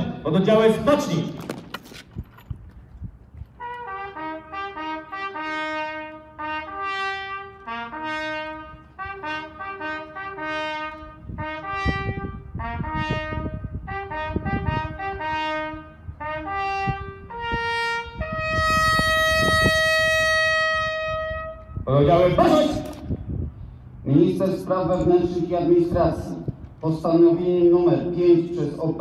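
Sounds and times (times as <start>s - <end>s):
solo trumpet fanfare: 3.5s - 22.8s.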